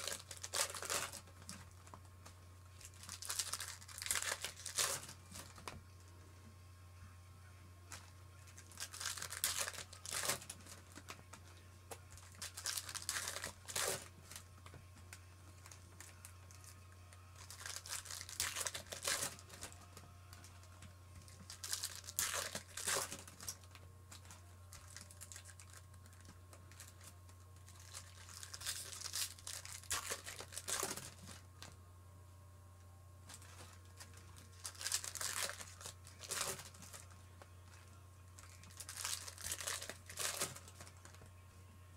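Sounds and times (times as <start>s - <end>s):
foil packs tearing and crinkling: 0.0s - 2.0s, 2.7s - 5.7s, 7.9s - 11.3s, 12.1s - 14.5s, 17.4s - 19.8s, 21.3s - 27.1s, 27.7s - 31.7s, 33.3s - 37.1s, 38.4s - 41.2s.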